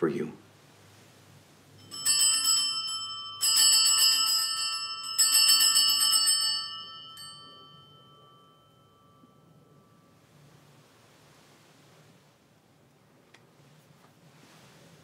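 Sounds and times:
altar bells jangling: 1.8 - 10.6.

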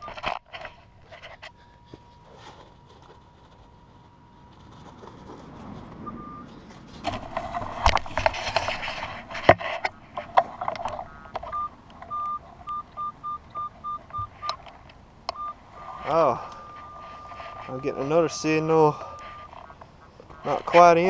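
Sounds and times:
scraping and rustling: 0.0 - 11.6, 15.7 - 21.0
metal detector beeps: 6.0 - 6.5, 10.9 - 14.6, 15.3 - 21.0.

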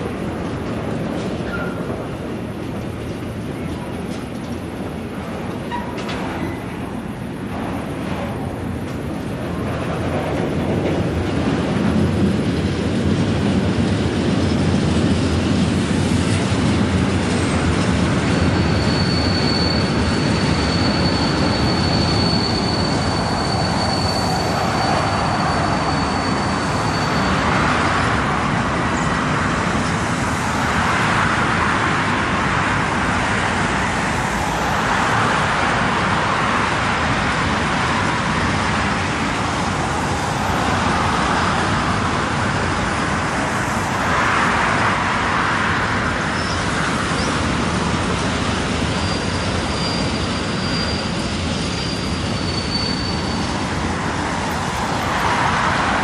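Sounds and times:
freight train rumble and clatter: 0.0 - 56.0
high wheel squeal: 1.4 - 2.1, 5.6 - 6.8, 17.3 - 31.0, 46.3 - 56.0.

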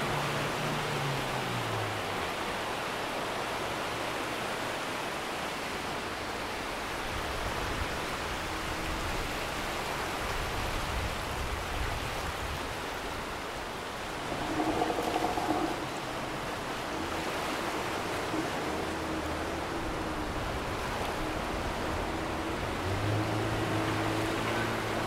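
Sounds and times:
surf and moving water: 0.0 - 25.0
low hum: 13.7 - 25.0.

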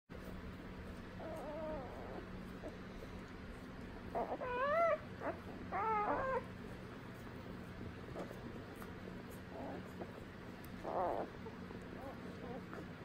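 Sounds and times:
steady low hum: 0.1 - 13.0
puppies squealing and whimpering: 1.1 - 2.9, 4.0 - 6.6, 9.4 - 13.0.

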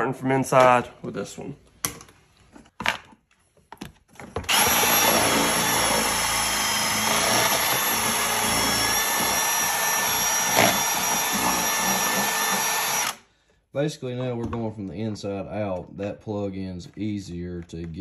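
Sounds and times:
cordless power tool whining: 4.5 - 13.2.

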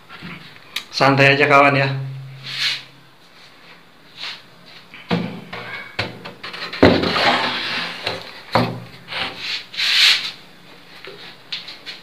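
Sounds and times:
wood scraping on wood: 6.4 - 8.4.

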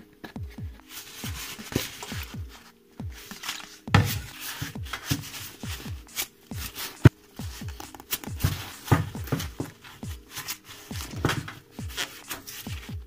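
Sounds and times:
deep kick drums: 0.4 - 1.5, 5.6 - 6.7, 7.4 - 10.2.

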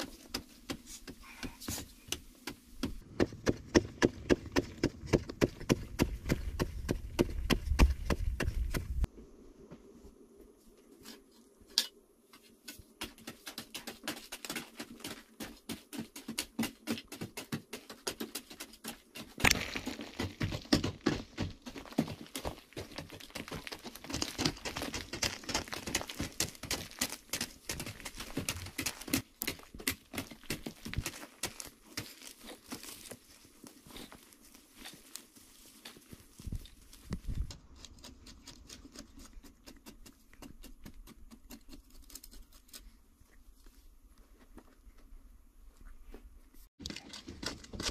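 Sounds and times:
hoe chopping into soil: 2.8 - 9.1
earth crumbling and scattering: 19.3 - 37.6.

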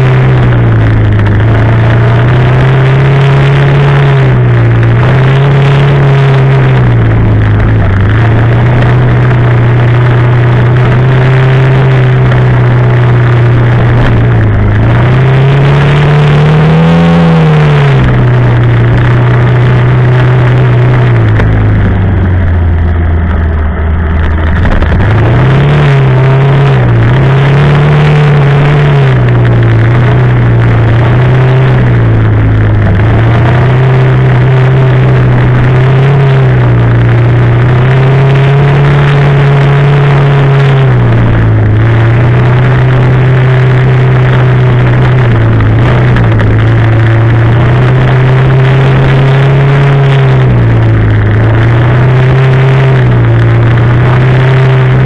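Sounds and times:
quad bike engine revving: 0.0 - 55.0.

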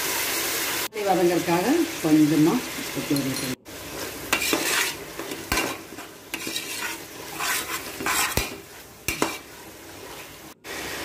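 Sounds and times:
food sizzling in oil: 0.0 - 11.0
spoon scraping a pot: 4.3 - 9.6.

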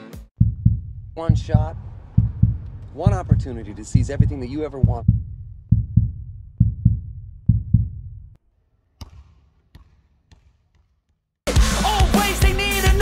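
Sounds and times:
heartbeat thumps: 0.4 - 8.4
ball bouncing on wooden floor: 9.0 - 11.2.

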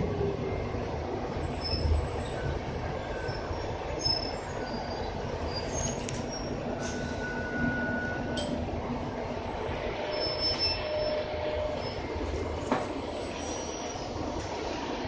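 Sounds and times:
bus running and road noise: 0.0 - 15.0
thin squealing tones: 10.1 - 12.1.

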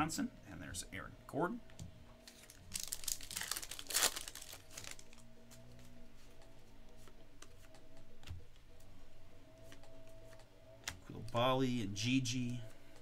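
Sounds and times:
foil wrapper tearing and crinkling: 2.2 - 5.2.

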